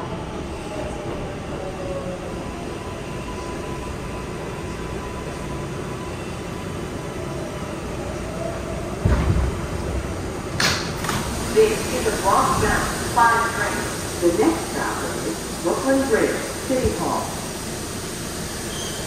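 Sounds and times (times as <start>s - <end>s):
subway train wheels rumbling: 0.0s - 19.0s.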